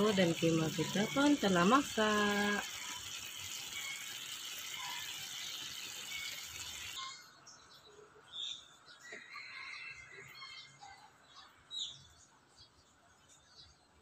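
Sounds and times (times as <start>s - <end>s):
food sizzling in a wok: 0.0s - 7.1s.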